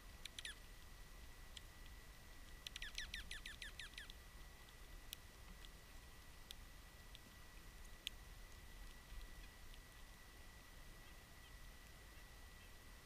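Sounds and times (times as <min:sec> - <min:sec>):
songbird chirping: 0:00.2 - 0:00.8, 0:02.5 - 0:12.9.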